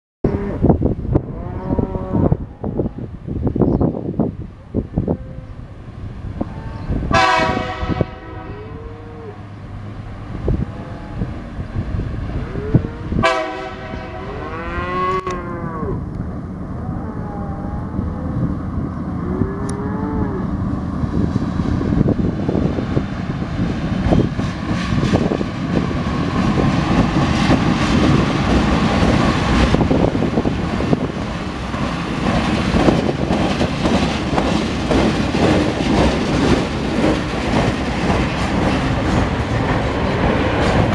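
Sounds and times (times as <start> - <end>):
locomotive engine rumble: 0.3 - 40.9
cattle mooing: 1.3 - 2.9, 8.3 - 9.5, 14.1 - 16.1, 16.8 - 18.4, 19.1 - 20.6
train horn blasts: 6.4 - 9.5, 12.4 - 16.0
train wheel clatter: 21.1 - 40.9.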